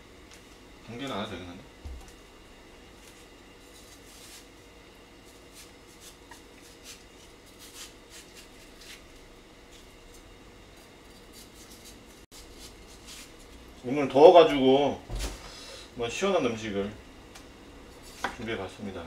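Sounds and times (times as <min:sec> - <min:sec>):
low steady hum: 0:00.0 - 0:19.0
knife cutting watermelon: 0:05.2 - 0:09.9, 0:10.8 - 0:13.6, 0:17.9 - 0:18.5.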